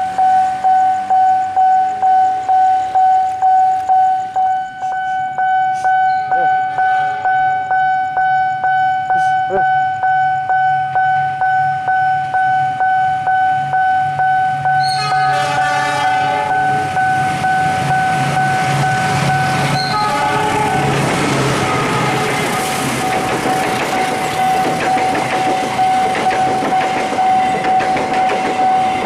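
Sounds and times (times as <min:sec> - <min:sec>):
train rumbling: 0:00.0 - 0:29.0
level crossing bell ringing: 0:00.2 - 0:15.3
locomotive horn: 0:05.7 - 0:07.4, 0:14.8 - 0:17.3, 0:18.6 - 0:22.7.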